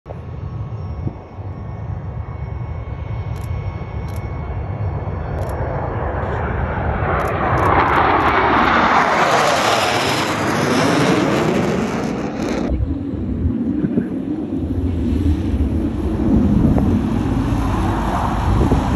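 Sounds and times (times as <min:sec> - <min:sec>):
jets roaring overhead: 0:00.1 - 0:18.9.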